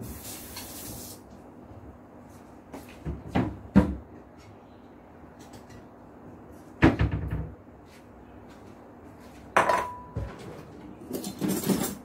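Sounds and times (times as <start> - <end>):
bowl knocking on counter: 9.6 - 10.3
crockery and utensils rattling: 9.7 - 12.0.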